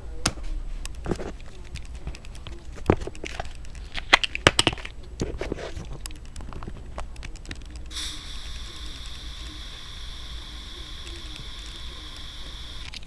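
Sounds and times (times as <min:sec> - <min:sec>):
gas hissing: 0:07.9 - 0:13.0.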